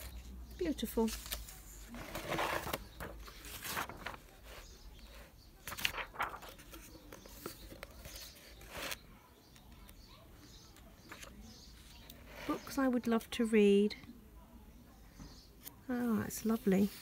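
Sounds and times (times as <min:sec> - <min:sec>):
magazine pages turning: 0:00.9 - 0:09.0, 0:10.8 - 0:12.6
paper rustles and swishes: 0:01.0 - 0:04.7, 0:05.6 - 0:09.0.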